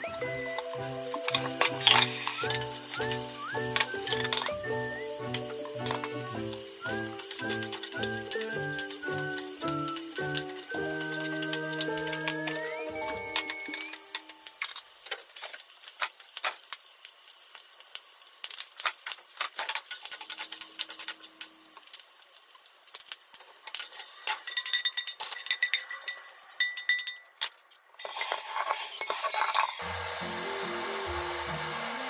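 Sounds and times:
squeeze bottle squirting: 0.0s - 14.0s
background music: 0.0s - 14.5s, 29.8s - 32.0s
food sizzling in frying pan: 0.0s - 26.9s, 28.0s - 32.0s
utensil clinking against pan: 23.8s - 27.3s.

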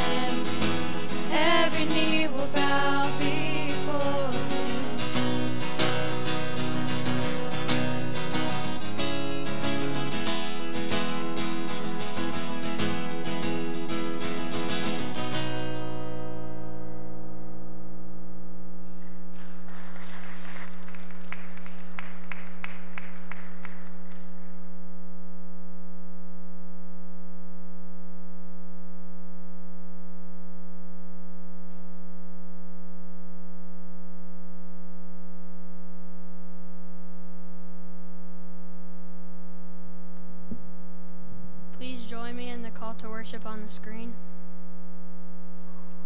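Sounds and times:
steady mains hum: 0.0s - 46.0s
congregation clapping: 19.0s - 24.6s.

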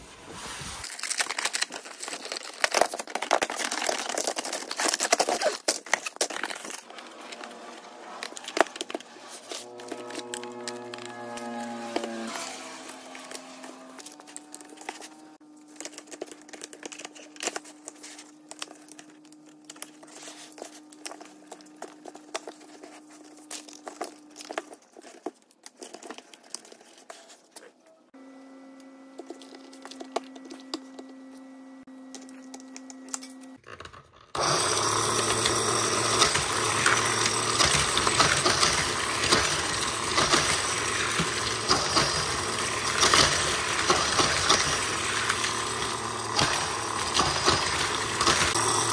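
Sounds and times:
motorized booster whirring: 6.9s - 15.4s, 34.4s - 48.9s
plastic track pieces clicking together: 33.2s - 48.8s.

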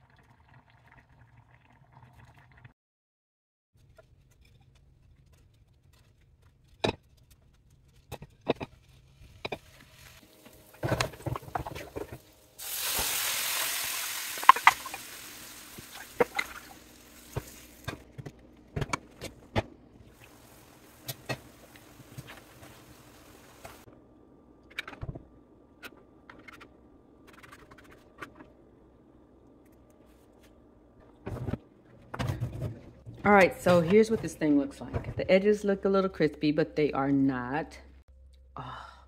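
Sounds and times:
sauce sizzling in a frying pan: 12.5s - 17.8s.

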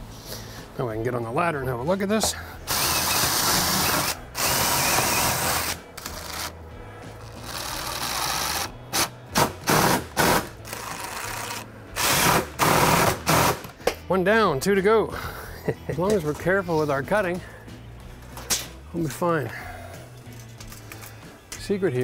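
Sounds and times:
cordless drill drilling: 2.7s - 6.5s, 9.7s - 13.6s.

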